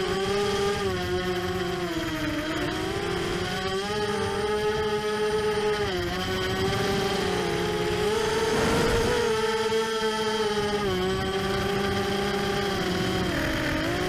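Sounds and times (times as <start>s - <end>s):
quadcopter motors whining: 0.0s - 14.0s.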